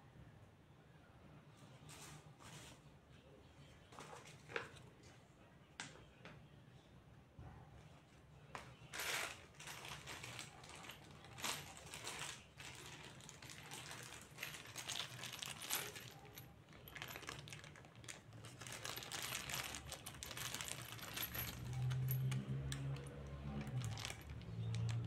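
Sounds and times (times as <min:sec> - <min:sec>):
plastic bag crinkling: 0:09.0 - 0:25.0
metal screws clinking: 0:10.6 - 0:25.0.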